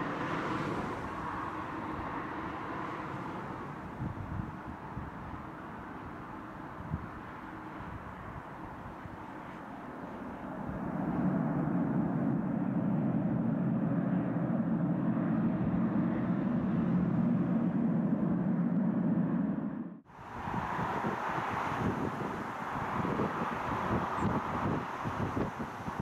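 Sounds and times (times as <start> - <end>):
turboprop engines droning: 0.0 - 26.0.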